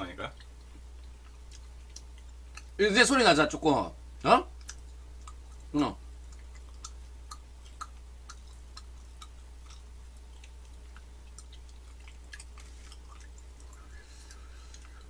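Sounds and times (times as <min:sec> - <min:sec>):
mouth clicks and smacks chewing: 0:00.3 - 0:02.8, 0:04.5 - 0:15.0
low hum: 0:03.8 - 0:15.0.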